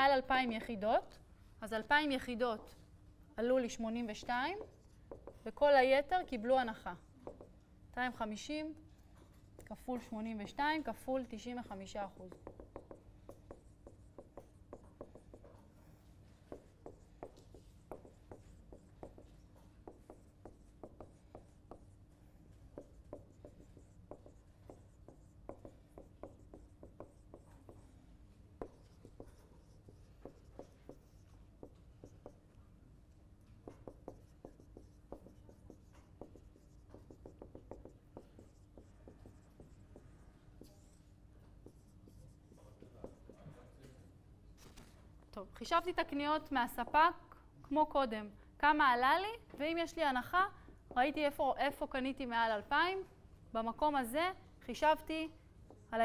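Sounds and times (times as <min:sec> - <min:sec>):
marker writing on whiteboard: 0:03.9 - 0:06.2, 0:07.0 - 0:07.6, 0:11.8 - 0:32.6, 0:33.4 - 0:43.8.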